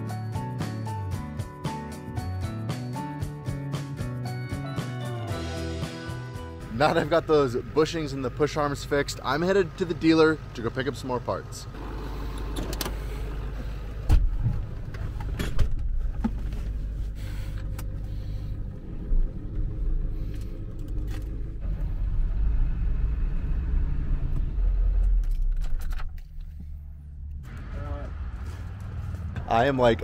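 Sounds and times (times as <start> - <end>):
truck engine rumbling: 4.2 - 30.0
car door shutting: 12.2 - 13.3, 13.9 - 16.8.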